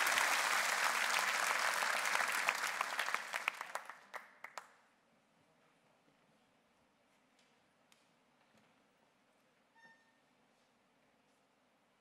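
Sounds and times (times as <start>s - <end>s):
audience applause: 0.0s - 4.7s.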